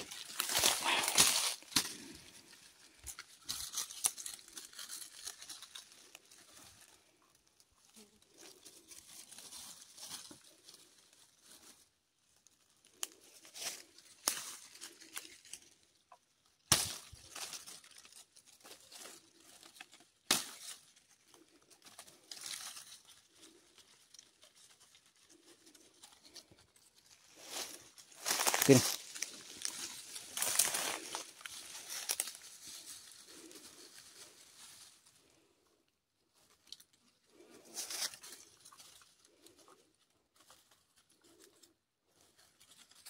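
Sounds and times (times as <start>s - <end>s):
twigs snapping: 0.0s - 6.3s, 12.9s - 15.7s, 16.6s - 21.0s, 27.6s - 33.6s
dry leaves and twigs rustling: 0.0s - 43.0s.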